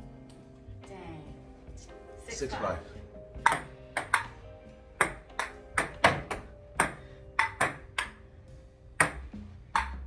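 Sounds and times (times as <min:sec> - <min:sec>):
table tennis ball clicking: 0:05.0 - 0:08.2, 0:09.0 - 0:10.0.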